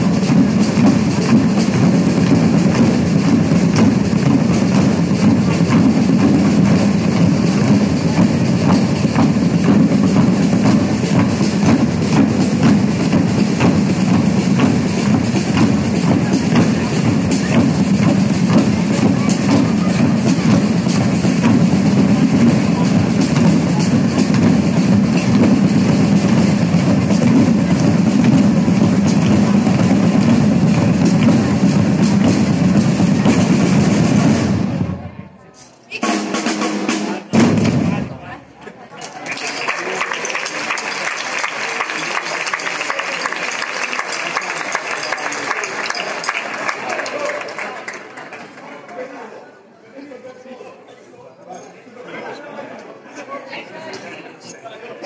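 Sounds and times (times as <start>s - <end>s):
sharp accented drum strokes: 0.0s - 35.2s
drum corps playing: 0.0s - 35.3s, 35.9s - 38.4s, 39.3s - 48.0s.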